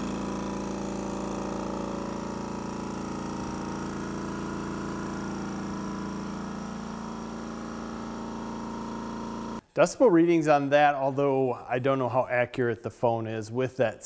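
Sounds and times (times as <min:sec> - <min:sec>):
air compressor running: 0:00.0 - 0:09.6.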